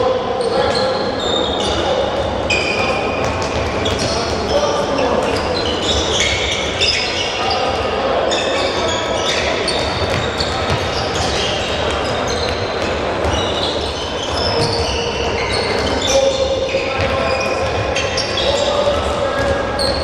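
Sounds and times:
balls bouncing on hall floor: 1.7s - 7.0s, 8.7s - 20.0s
shoes squeaking: 2.5s - 20.0s.

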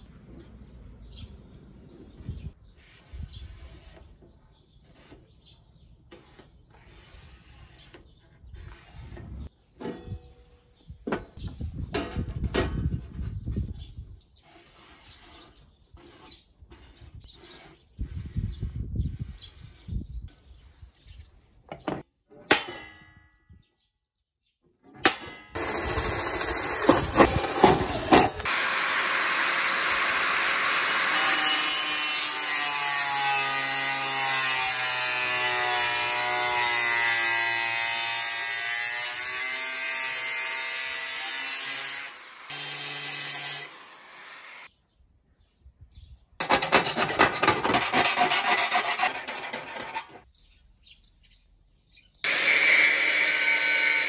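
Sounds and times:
rasping on metal edge: 14.4s - 20.0s, 46.4s - 50.2s
angle grinder cutting metal: 25.6s - 44.7s, 46.4s - 50.2s, 52.2s - 54.0s.

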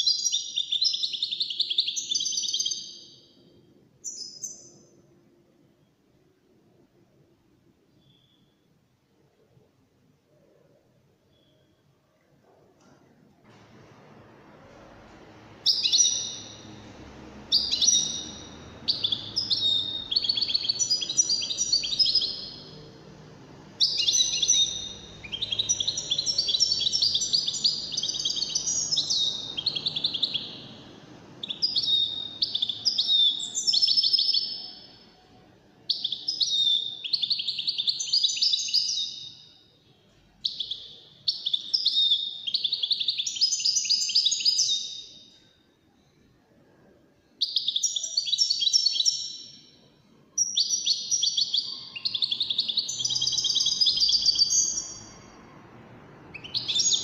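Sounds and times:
goldfinch singing: 15.6s - 16.8s, 17.4s - 22.8s, 23.8s - 30.8s, 31.4s - 34.9s, 35.9s - 39.4s, 50.4s - 55.2s, 56.3s - 57.0s.

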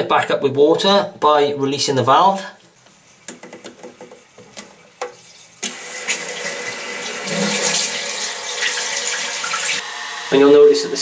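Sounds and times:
water running into toilet cistern: 5.6s - 9.8s.

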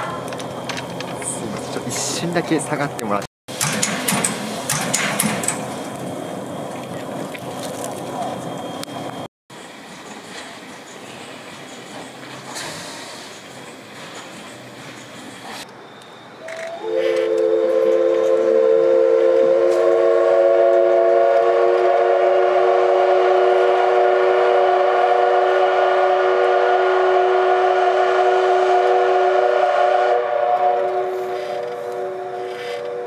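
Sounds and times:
steam locomotive whistle: 16.4s - 33.0s.

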